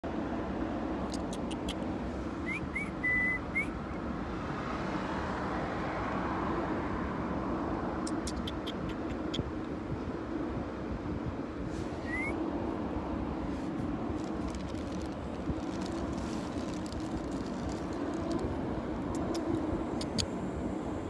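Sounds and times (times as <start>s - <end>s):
whistled notes: 2.5s - 3.7s
background hum: 7.9s - 21.0s.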